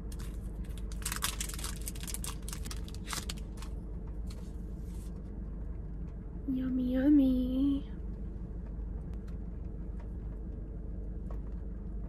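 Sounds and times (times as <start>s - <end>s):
low steady hum: 0.0s - 12.0s
wrapper tearing and crinkling: 0.1s - 3.8s.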